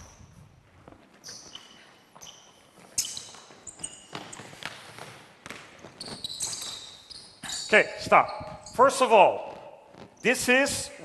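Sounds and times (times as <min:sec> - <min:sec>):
sneaker squeaks: 0:00.0 - 0:11.0
basketball bouncing on hardwood: 0:04.1 - 0:06.6.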